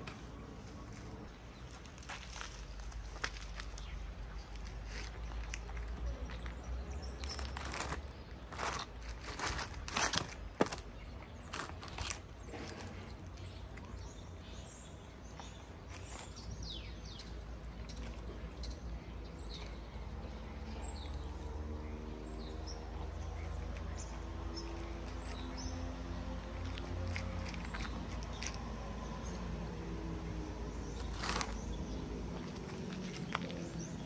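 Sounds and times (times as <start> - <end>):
low outdoor rumble: 0.0 - 34.0
small birds chirping: 0.0 - 34.0
cat chewing and crunching: 0.1 - 16.7, 17.4 - 21.6, 22.5 - 34.0.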